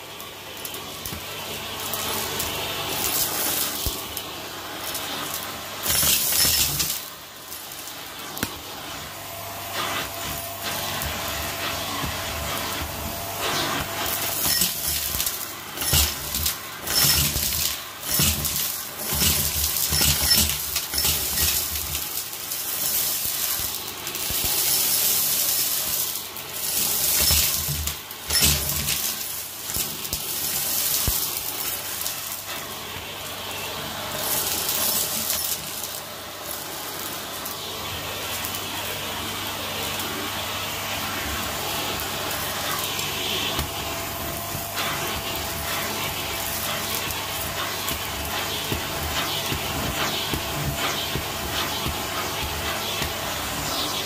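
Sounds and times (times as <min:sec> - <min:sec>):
grit rattling up vacuum hose: 0:09.8 - 0:26.0, 0:42.4 - 0:54.0.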